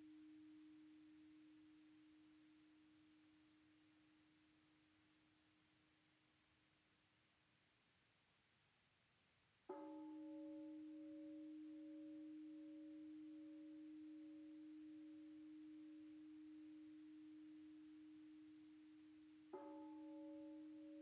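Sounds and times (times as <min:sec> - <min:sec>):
bell-like struck tone: 0:09.7 - 0:21.0.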